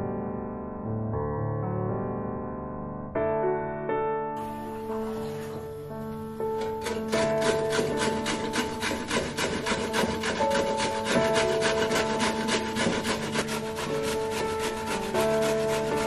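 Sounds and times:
food grated on metal grater: 0:06.5 - 0:16.0.

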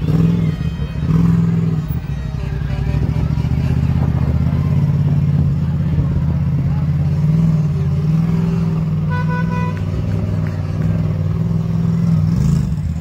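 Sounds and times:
car engines driving slowly: 0:00.0 - 0:13.0
car horn beeps: 0:09.0 - 0:10.0.

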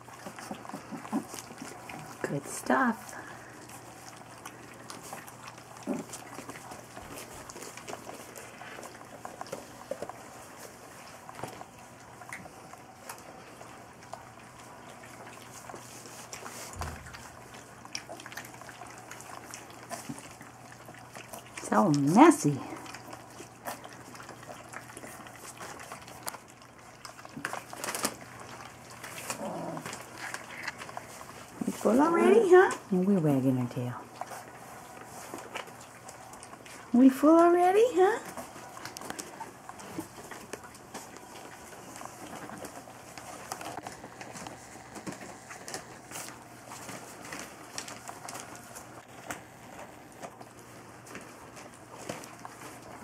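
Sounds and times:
puppies lapping wet food: 0:00.0 - 0:53.0
paper crinkling: 0:22.9 - 0:32.6, 0:38.2 - 0:53.0.

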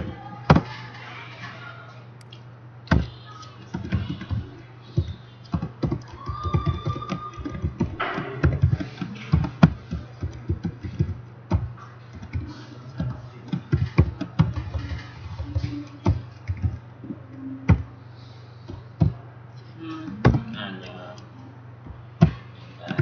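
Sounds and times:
steady low hum: 0:00.0 - 0:23.0
keyboard keys clacking: 0:02.2 - 0:18.0.

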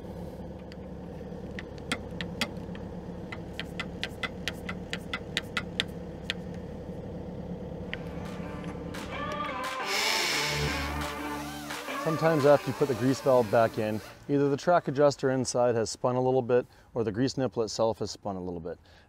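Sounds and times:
engine idling: 0:00.0 - 0:14.9.

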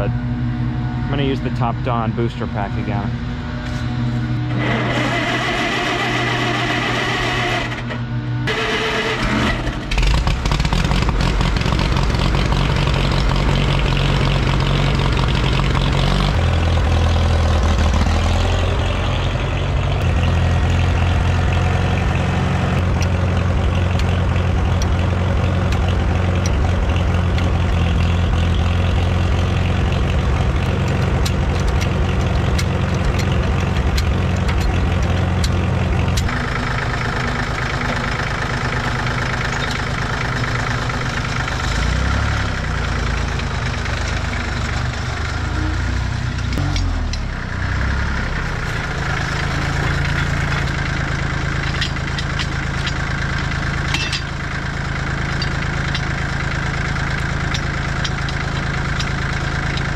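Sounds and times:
tractor engine running: 0:00.0 - 0:59.9
engine starter cranking: 0:04.5 - 0:11.1.

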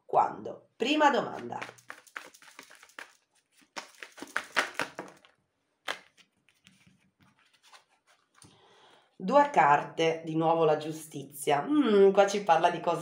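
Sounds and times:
cards being shuffled: 0:01.3 - 0:08.5
card snap: 0:01.6 - 0:05.3, 0:05.9 - 0:06.3.

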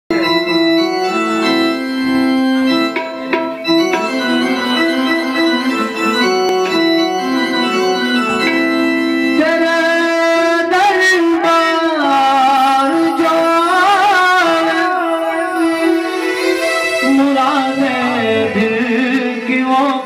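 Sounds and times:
electronic keyboard melody: 0:00.1 - 0:20.0
tabla strokes: 0:01.4 - 0:08.9.

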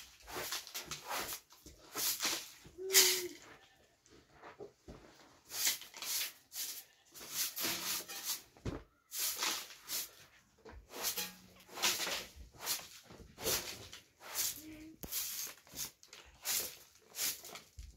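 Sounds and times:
hand broom sweeping earthen floor: 0:00.0 - 0:03.6, 0:04.4 - 0:17.9.

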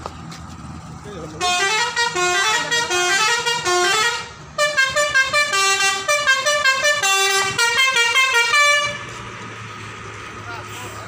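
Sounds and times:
multi-tone bus air horn tune: 0:01.4 - 0:09.2.

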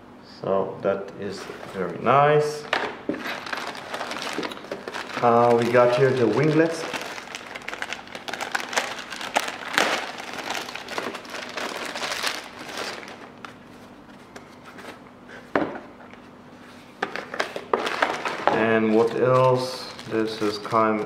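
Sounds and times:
plastic bag crinkling: 0:03.2 - 0:13.7, 0:17.3 - 0:21.0.

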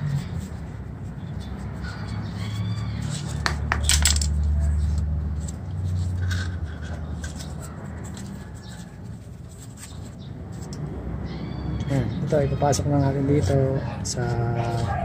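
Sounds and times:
screwdriver clattering on concrete: 0:03.4 - 0:04.6.

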